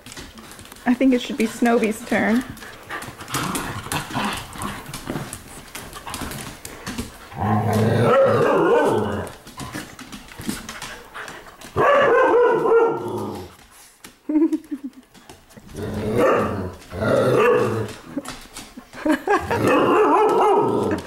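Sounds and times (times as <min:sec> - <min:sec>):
dogs barking and yowling: 0:07.2 - 0:09.6, 0:11.6 - 0:13.6, 0:16.0 - 0:18.3, 0:19.0 - 0:21.0.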